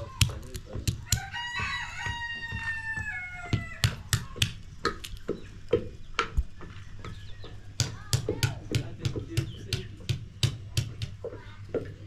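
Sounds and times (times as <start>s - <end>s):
hatchet cracking walnuts: 0.0s - 2.3s, 3.6s - 6.4s
pestle pounding in wooden mortar: 0.0s - 12.0s
rooster crowing: 1.0s - 4.1s.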